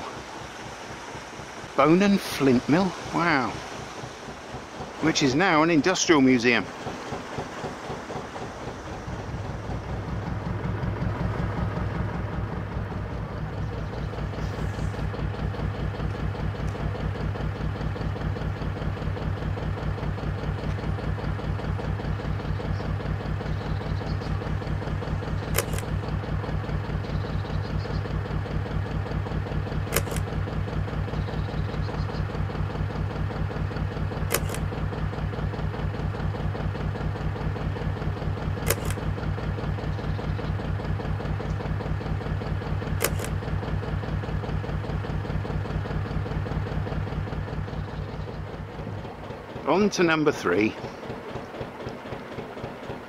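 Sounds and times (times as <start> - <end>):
diesel engine idling: 0.0 - 53.0
sharp click: 25.5 - 25.9, 29.9 - 30.3, 34.3 - 34.7, 38.7 - 39.0, 43.0 - 43.4.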